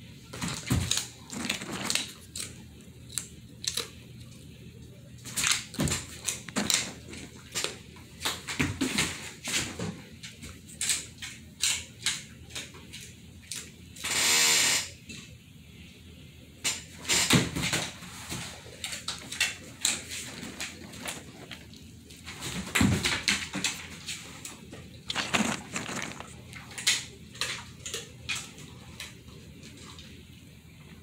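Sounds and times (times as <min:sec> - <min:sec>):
dog claws clicking on hardwood floor: 0:22.5 - 0:29.2.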